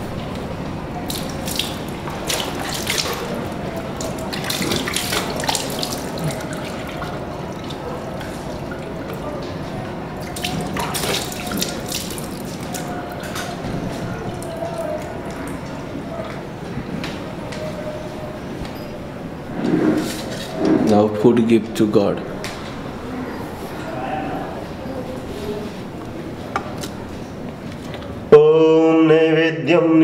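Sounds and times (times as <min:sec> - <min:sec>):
water running and splashing: 0:01.0 - 0:16.3.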